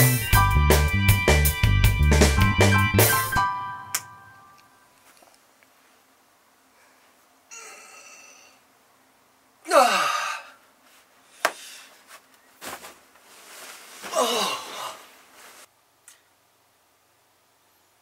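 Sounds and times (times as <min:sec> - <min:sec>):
breathy intake: 0:07.5 - 0:08.6
man sighing: 0:07.5 - 0:08.6, 0:09.6 - 0:10.6, 0:14.1 - 0:15.1.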